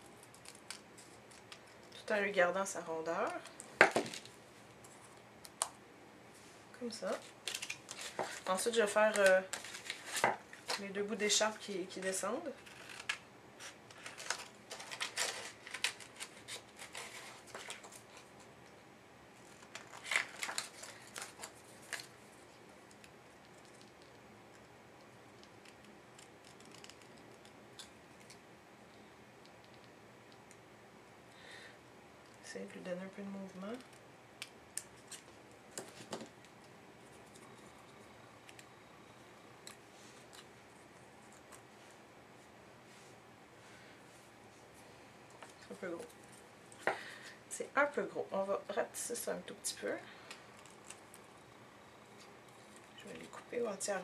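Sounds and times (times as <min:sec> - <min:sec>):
scissors snipping paper: 0:25.4 - 0:28.4.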